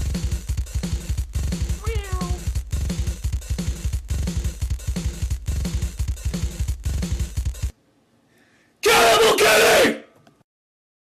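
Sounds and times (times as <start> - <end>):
drum machine beat: 0.0 - 7.8.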